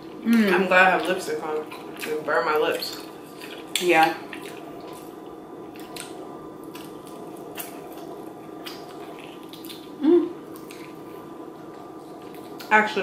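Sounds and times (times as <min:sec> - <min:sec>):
person humming mm: 0:00.2 - 0:00.6, 0:10.0 - 0:10.4
wet chewing and lip smacking: 0:00.4 - 0:12.7.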